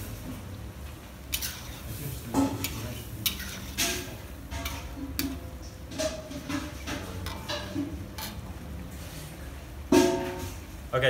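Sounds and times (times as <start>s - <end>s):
metal spatula scraping wok: 1.3s - 10.6s.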